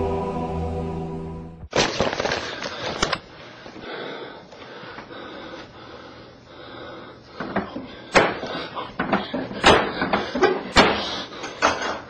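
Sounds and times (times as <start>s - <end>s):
background music: 0.0s - 1.7s.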